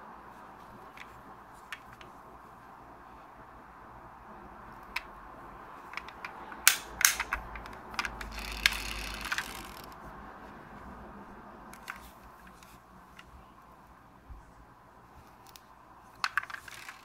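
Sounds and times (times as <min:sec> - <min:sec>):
model car clicks and snaps: 0:04.8 - 0:05.1, 0:05.9 - 0:10.0, 0:15.3 - 0:17.0
toy car door clicking shut: 0:06.0 - 0:09.9.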